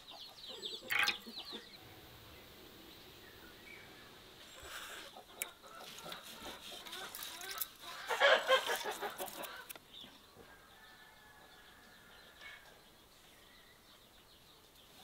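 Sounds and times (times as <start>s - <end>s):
chicken clucking: 4.9s - 10.2s.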